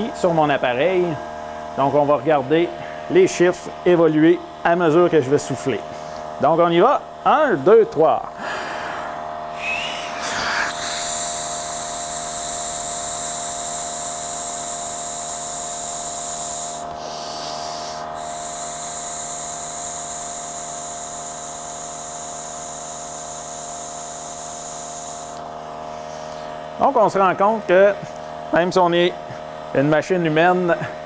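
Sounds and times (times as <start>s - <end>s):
steady mechanical hum: 0.0s - 31.0s
breath blown through a hose: 8.4s - 12.9s, 16.6s - 19.3s.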